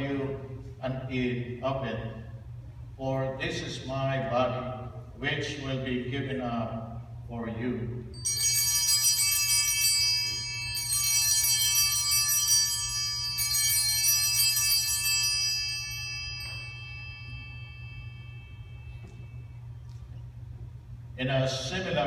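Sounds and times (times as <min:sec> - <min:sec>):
altar bells ringing: 0:08.1 - 0:20.4.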